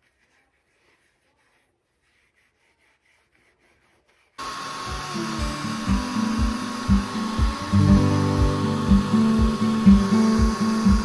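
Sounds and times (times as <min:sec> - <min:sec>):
rag wiping leather: 0:00.0 - 0:05.0.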